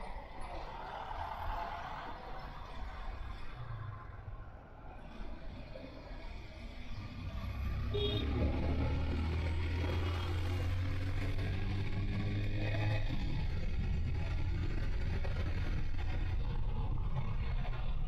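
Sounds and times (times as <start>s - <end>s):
road and wind noise: 0.0s - 18.0s.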